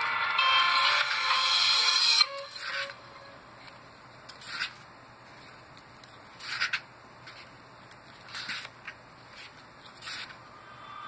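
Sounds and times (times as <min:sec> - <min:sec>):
paper pages turning: 0:03.6 - 0:10.4.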